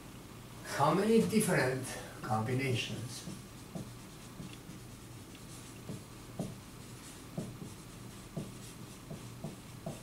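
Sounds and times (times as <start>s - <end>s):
low room hum: 0.0s - 10.0s
marker writing on whiteboard: 3.2s - 10.0s.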